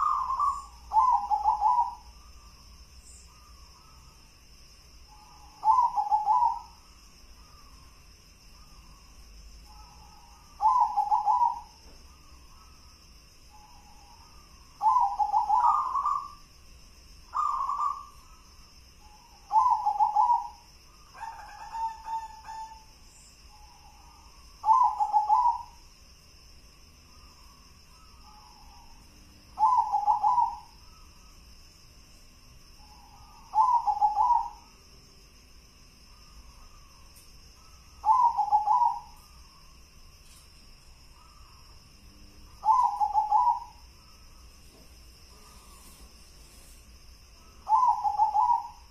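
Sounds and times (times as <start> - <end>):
dove cooing: 0.0 - 2.2, 5.1 - 6.8, 9.7 - 11.8, 13.5 - 16.4, 17.3 - 18.4, 19.4 - 22.9, 23.5 - 25.8, 28.0 - 30.8, 32.9 - 34.7, 38.0 - 39.2, 42.6 - 43.8, 47.5 - 48.9.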